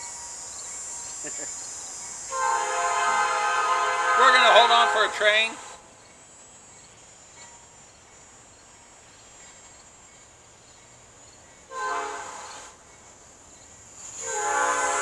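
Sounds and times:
thin high hiss: 0.0 - 15.0
distant train horn: 2.3 - 5.9, 11.7 - 12.8, 14.1 - 15.0.

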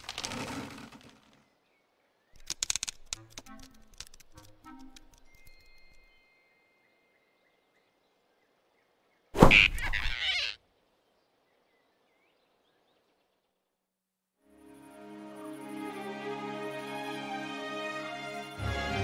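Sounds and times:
soft music: 3.2 - 7.5, 14.4 - 19.0
sharp thump: 9.4 - 9.8.

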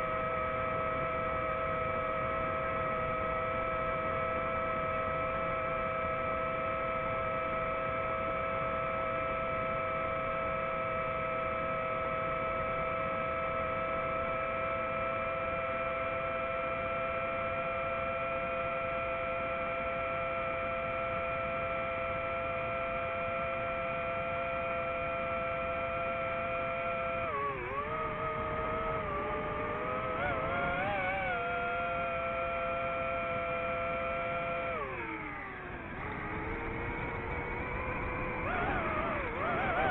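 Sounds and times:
drone propellers whining: 20.8 - 39.9.

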